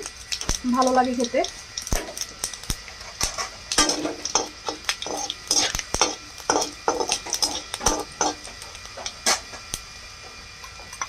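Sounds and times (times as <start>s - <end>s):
metal spatula scraping a pan: 3.0s - 9.5s.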